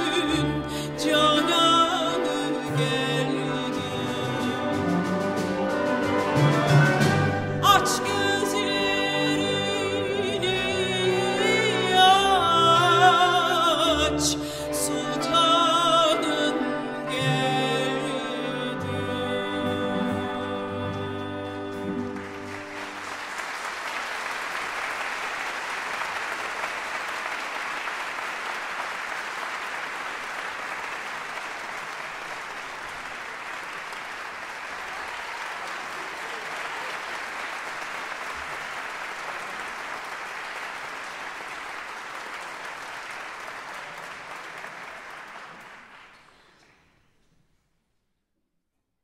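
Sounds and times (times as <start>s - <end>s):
audience applauding: 21.7s - 47.0s.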